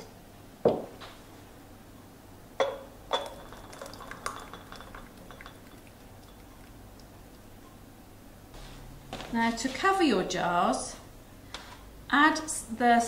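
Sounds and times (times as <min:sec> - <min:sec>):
jug knocking against pan and jars: 0:02.6 - 0:06.6.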